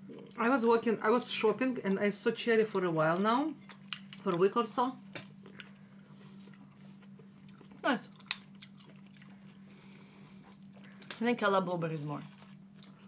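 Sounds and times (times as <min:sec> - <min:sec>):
chewing: 0:02.6 - 0:04.4, 0:05.4 - 0:11.2, 0:12.2 - 0:13.0.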